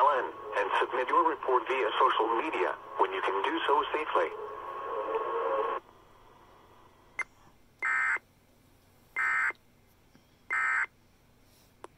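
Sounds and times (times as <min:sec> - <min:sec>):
broadcast audio: 0:00.0 - 0:07.1.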